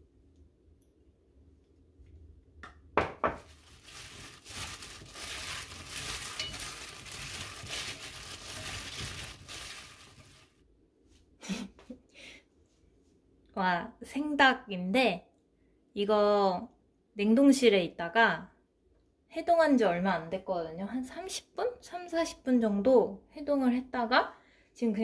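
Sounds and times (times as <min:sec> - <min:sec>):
rustling noise: 0:03.4 - 0:11.3.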